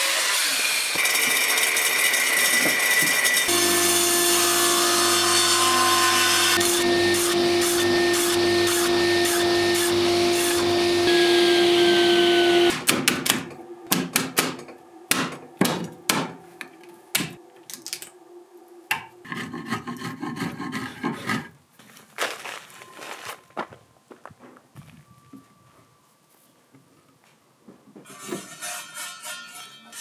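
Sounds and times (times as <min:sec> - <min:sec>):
table saw cutting wood: 0:00.0 - 0:12.9.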